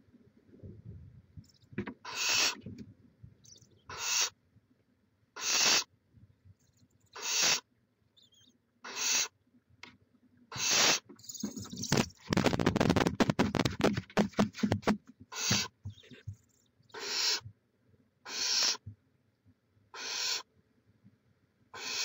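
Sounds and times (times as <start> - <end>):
owls hissing: 2.0 - 2.6, 3.9 - 4.3, 5.4 - 5.9, 7.1 - 7.6, 8.2 - 9.3, 10.5 - 12.0, 15.3 - 16.2, 16.9 - 17.4, 18.2 - 18.8, 19.9 - 20.5, 21.8 - 22.0.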